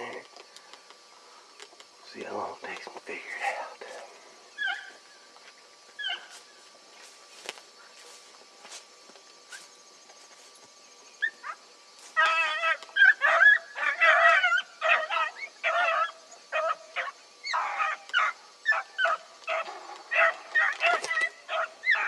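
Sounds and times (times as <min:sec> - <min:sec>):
dogs baying: 0:04.6 - 0:05.0, 0:06.0 - 0:06.4, 0:12.2 - 0:22.0.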